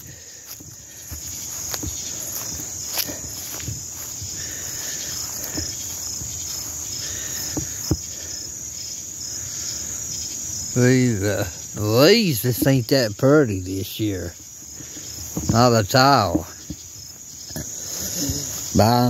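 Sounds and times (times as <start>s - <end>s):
soft thumps: 0.0s - 8.3s, 14.4s - 18.7s
crickets chirping: 0.0s - 19.0s.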